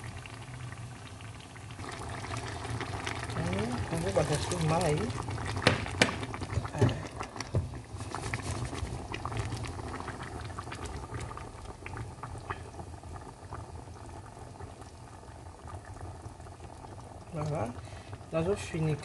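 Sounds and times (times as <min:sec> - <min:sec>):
stew bubbling and popping: 0:00.0 - 0:19.0.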